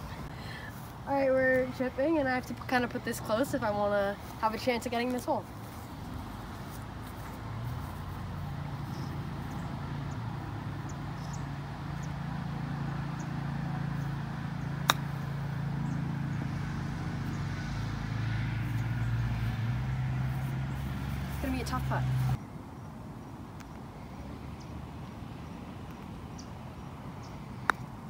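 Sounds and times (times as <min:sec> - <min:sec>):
low engine hum: 0:00.0 - 0:22.4
golf club striking ball: 0:14.8 - 0:15.4.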